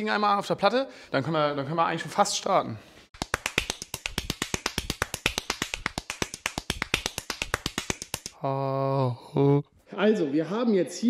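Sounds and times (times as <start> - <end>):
rapid even clicking: 3.2 - 8.4.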